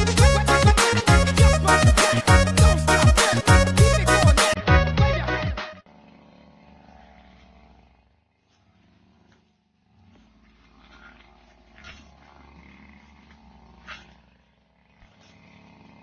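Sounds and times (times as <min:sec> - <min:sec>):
distant brush cutter engine: 0:05.8 - 0:16.0.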